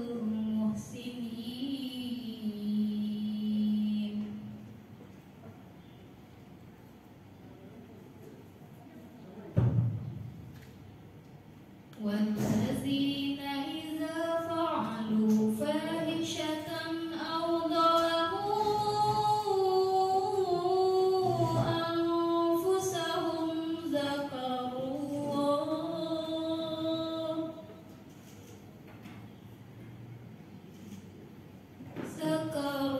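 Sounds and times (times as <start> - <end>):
woman chanting melodically: 0.0 - 4.8, 12.0 - 27.9, 32.0 - 32.9.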